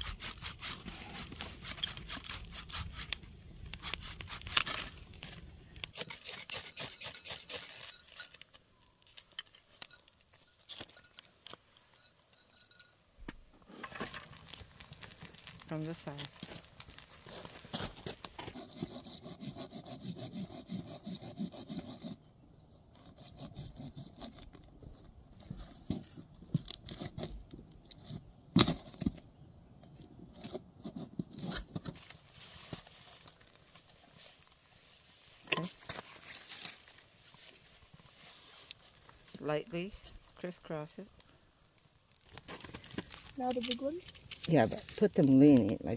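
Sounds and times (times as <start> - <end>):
sawing strokes on wood: 0.0 - 3.2, 6.0 - 7.9, 18.4 - 22.2, 23.0 - 24.4
sticks knocking and cracking: 42.1 - 45.7.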